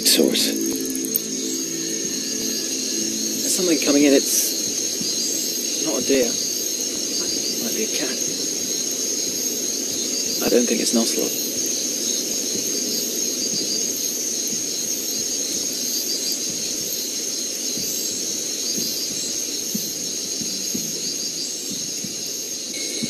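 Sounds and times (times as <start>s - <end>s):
low rushing noise: 0.0s - 7.2s
insects trilling: 0.0s - 23.0s.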